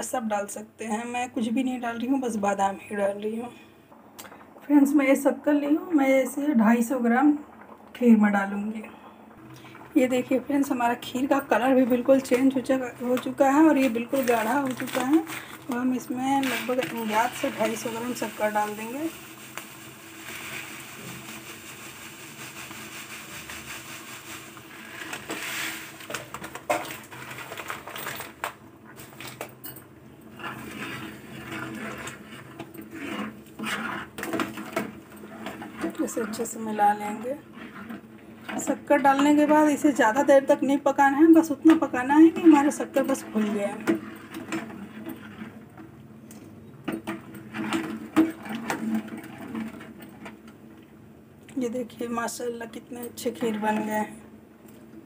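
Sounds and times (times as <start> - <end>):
sugar pouring into pot hiss: 6.8 - 29.2
metal spoon stirring in metal pot: 9.4 - 40.2, 41.0 - 45.8, 46.9 - 50.4
metal spoon scraping pot: 16.1 - 18.8, 30.3 - 39.4.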